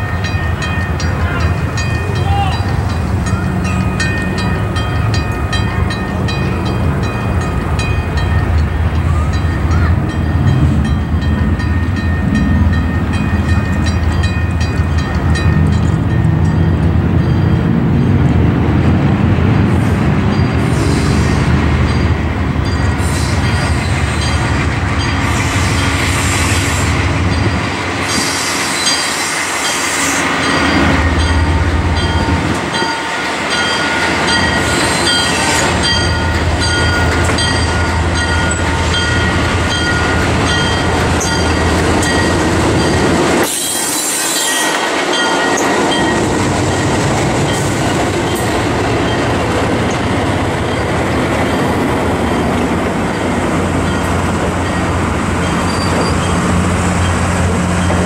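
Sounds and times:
high squeal: 55.6 - 56.4.

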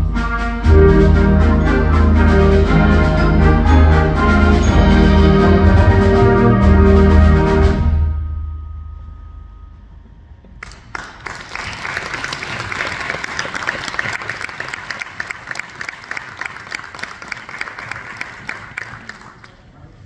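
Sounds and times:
audience applauding: 10.6 - 20.0.

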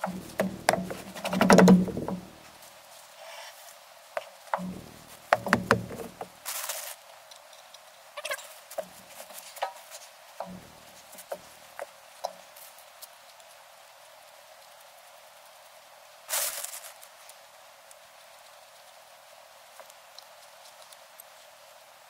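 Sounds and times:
heavy truck wheel clunking: 0.0 - 2.5, 4.6 - 6.4, 10.4 - 11.3
scuffing rustle: 0.0 - 7.1, 8.2 - 13.5, 16.3 - 21.6.

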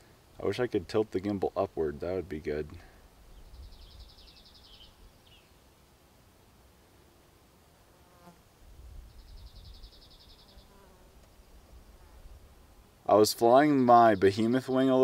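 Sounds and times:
wind rumble on microphone: 8.7 - 9.9.

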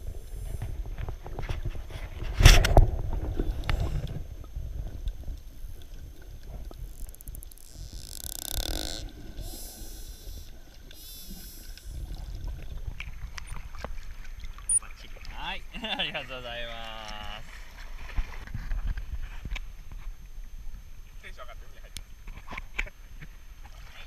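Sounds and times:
low water noise: 0.0 - 24.0
dolphin buzzing bursts: 7.0 - 12.2.

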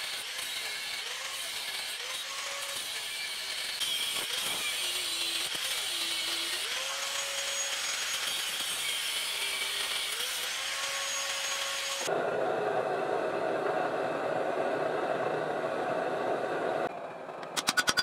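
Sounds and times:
angle grinder cutting steel: 0.0 - 12.1, 17.4 - 18.0.

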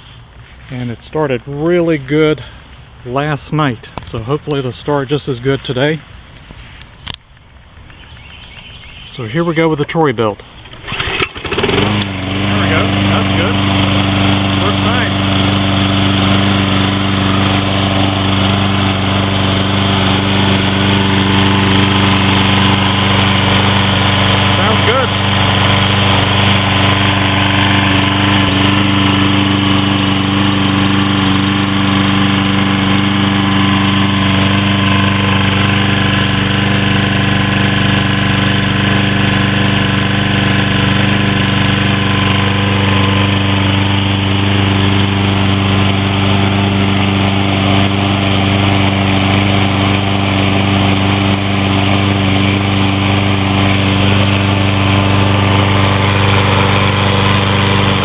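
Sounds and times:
lawn mower engine running: 0.0 - 58.0.

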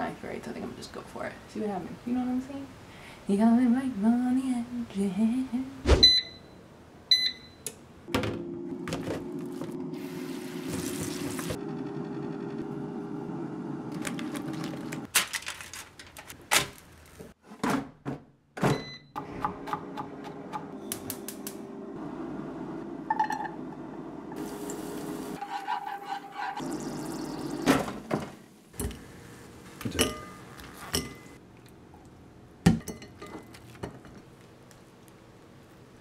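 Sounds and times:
short electronic beeps: 6.0 - 7.6
appliance humming: 8.1 - 15.1, 19.5 - 25.5.

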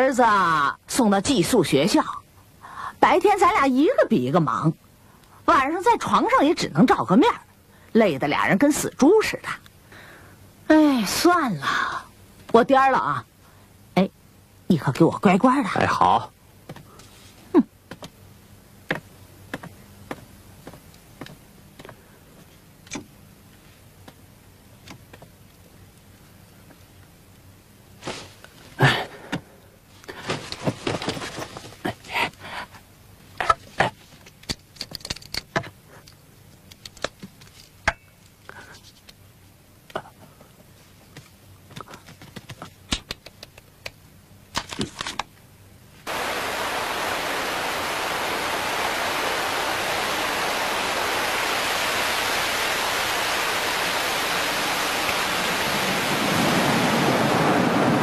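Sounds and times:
street ambience hiss: 0.0 - 33.4, 45.3 - 58.0.

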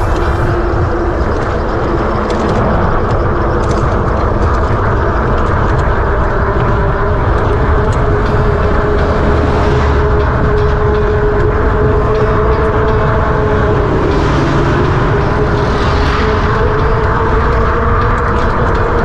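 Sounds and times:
road noise: 0.0 - 4.7, 6.8 - 19.0
wind rushing: 0.0 - 19.0.

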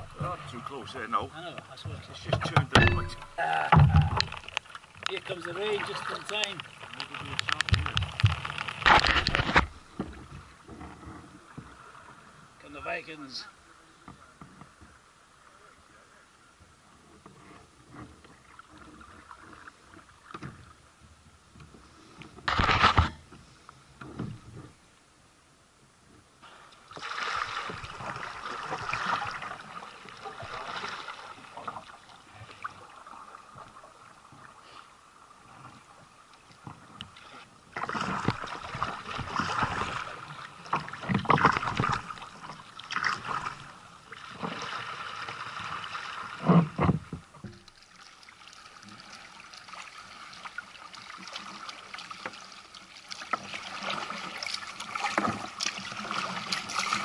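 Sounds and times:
water splashing against kayak hull: 0.0 - 12.4, 21.7 - 24.8, 26.4 - 57.0
sharp thump: 2.5 - 4.2.

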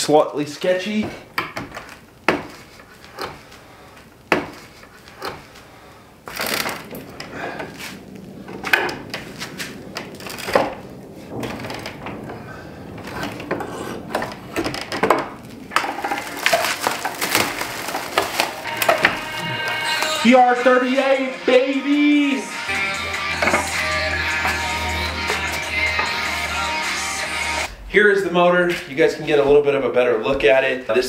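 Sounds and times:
wood creaking and cracking: 0.6 - 20.4
knocks on wooden boards: 1.1 - 2.6, 4.3 - 4.6.

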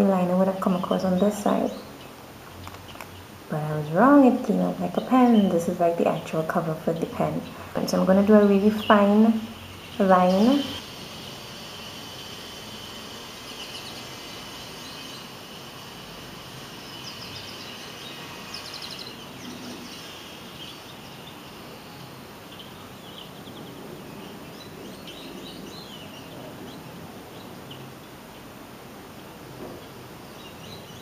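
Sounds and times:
steady background noise: 0.0 - 31.0
high bird chirps: 4.6 - 16.0, 16.6 - 27.9.

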